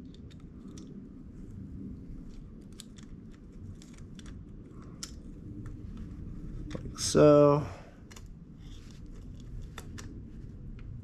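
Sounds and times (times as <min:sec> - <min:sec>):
faint clicks and scrapes of parts: 0:00.0 - 0:07.2, 0:08.0 - 0:11.0.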